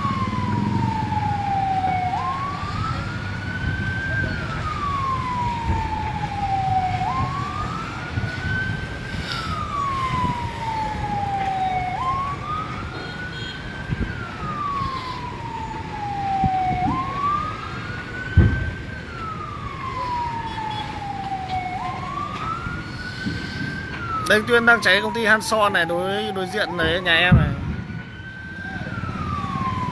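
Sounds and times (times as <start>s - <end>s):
fire engine siren wailing: 0.0s - 29.9s
thump: 18.4s - 18.7s.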